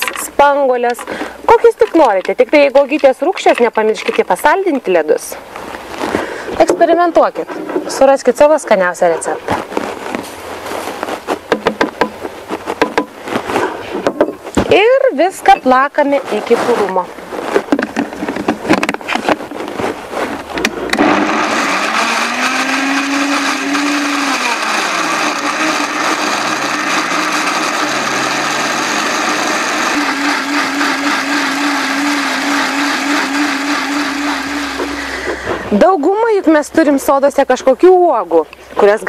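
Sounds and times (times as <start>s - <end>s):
blender motor blending frozen fruit: 20.9s - 35.4s.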